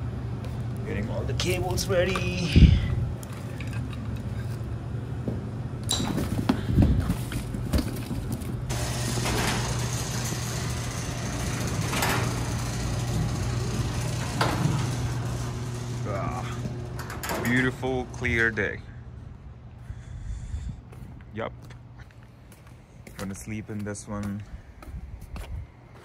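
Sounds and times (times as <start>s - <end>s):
garage door opener motor hum: 8.7s - 19.4s.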